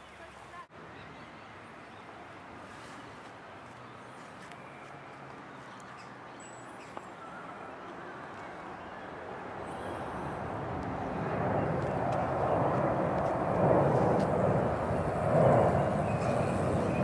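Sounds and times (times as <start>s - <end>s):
aircraft flying overhead: 3.8s - 17.0s.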